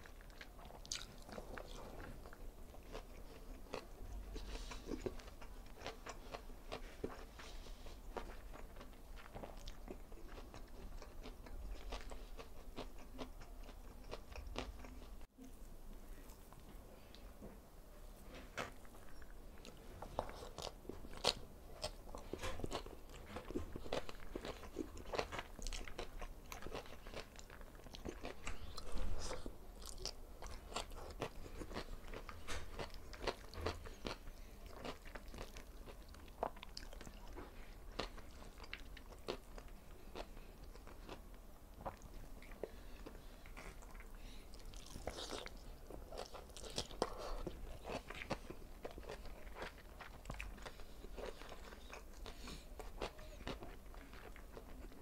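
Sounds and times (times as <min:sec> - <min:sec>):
crunchy chewing: 0:00.0 - 0:15.3, 0:18.3 - 0:55.0.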